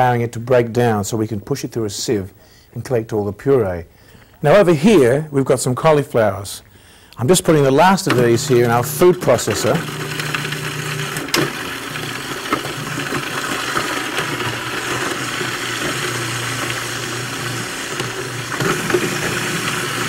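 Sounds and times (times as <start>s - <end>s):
food processor motor running: 8.1s - 20.0s.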